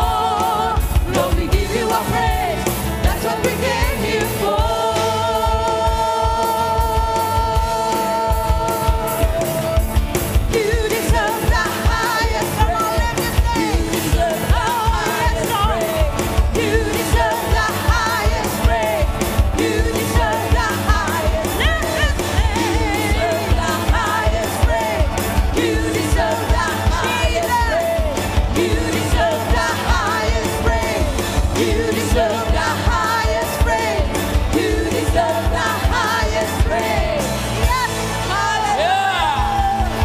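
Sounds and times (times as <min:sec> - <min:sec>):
band playing: 0:00.0 - 0:40.0
singers in unison: 0:00.0 - 0:40.0.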